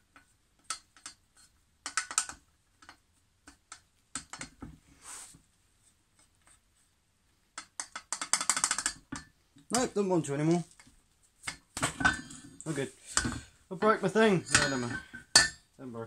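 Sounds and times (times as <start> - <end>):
metal clicks and knocks: 7.6 - 9.3.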